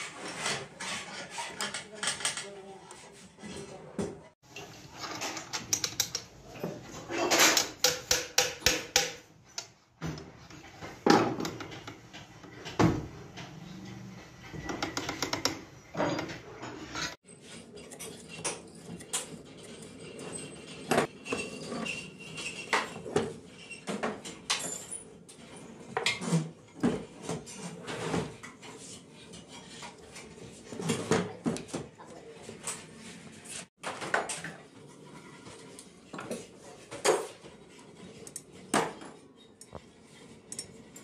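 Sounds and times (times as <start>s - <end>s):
metal tapping: 7.5s - 9.7s.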